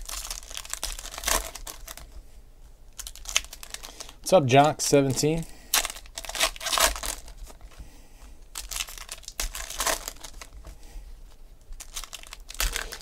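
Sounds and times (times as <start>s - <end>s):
foil wrapper tearing and crinkling: 0.0s - 2.1s, 2.9s - 4.9s, 5.7s - 7.6s, 8.5s - 10.6s, 11.7s - 13.0s.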